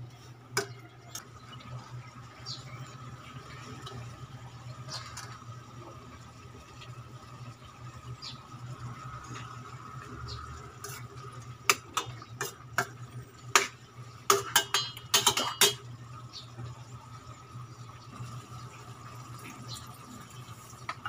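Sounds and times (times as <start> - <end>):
metal spoon clinking in a pot: 14.3 - 15.8.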